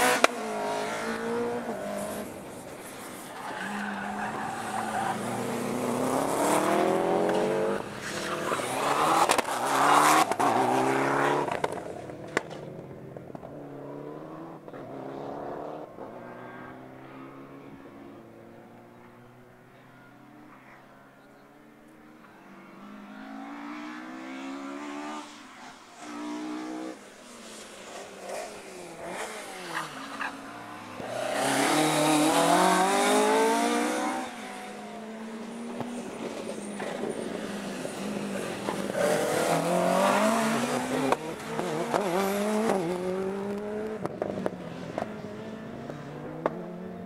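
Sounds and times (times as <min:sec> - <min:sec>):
rally car engine revving: 0:00.0 - 0:02.5, 0:03.1 - 0:12.6, 0:28.0 - 0:47.0.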